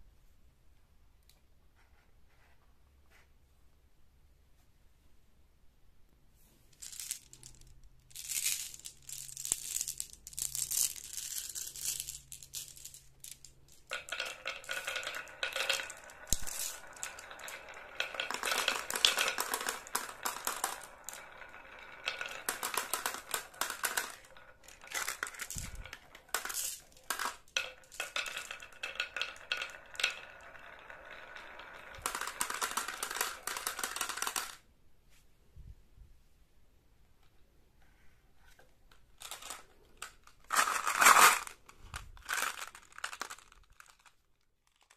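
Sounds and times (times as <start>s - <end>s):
marbles rolling on wooden track: 6.8s - 34.6s, 39.2s - 44.9s.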